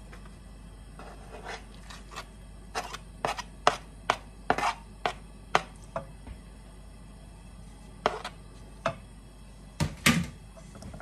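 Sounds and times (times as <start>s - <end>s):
wooden spoon scraping a board: 1.0s - 3.8s, 4.5s - 4.8s, 8.0s - 8.4s.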